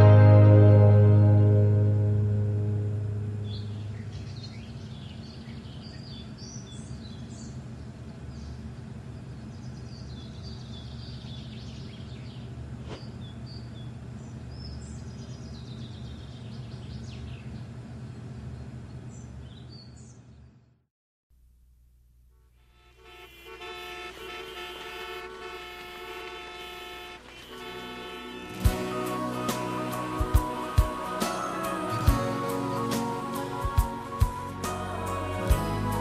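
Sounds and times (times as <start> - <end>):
song: 0.0 - 3.9, 28.0 - 36.0
low background rumble: 0.0 - 19.8
birds chirping: 3.4 - 20.6.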